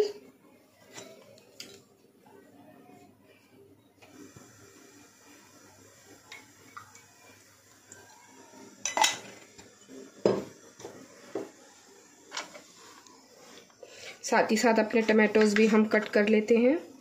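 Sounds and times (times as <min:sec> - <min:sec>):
utensils and pots clattering: 0:08.8 - 0:09.6.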